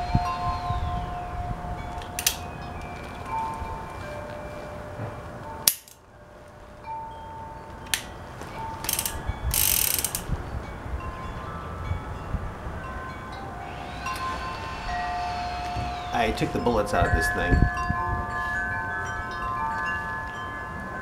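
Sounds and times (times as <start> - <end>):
wind chimes ringing: 0.0 - 21.0
revolver cylinder rattling whirr: 8.8 - 10.5, 13.4 - 17.9.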